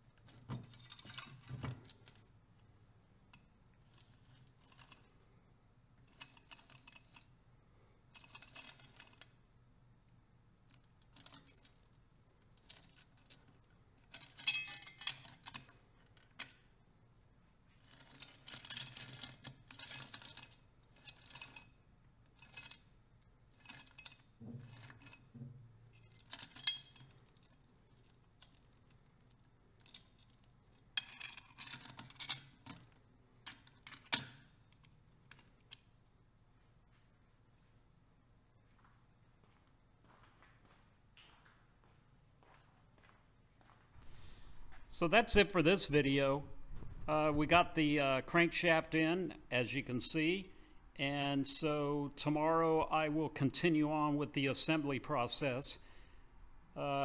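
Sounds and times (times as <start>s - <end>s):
metallic clinks and chain rattles: 14.0s - 15.8s, 25.9s - 32.8s.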